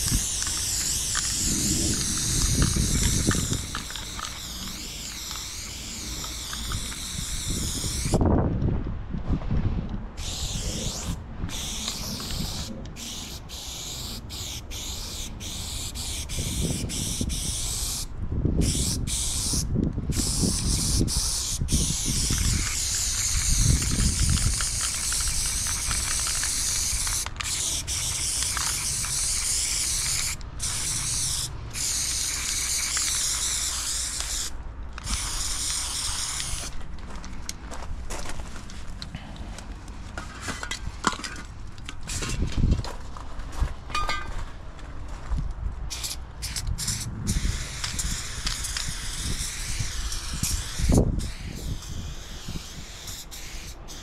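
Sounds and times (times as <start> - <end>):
aerosol spray can hissing: 0.0 - 8.2, 10.2 - 36.7, 45.9 - 54.0.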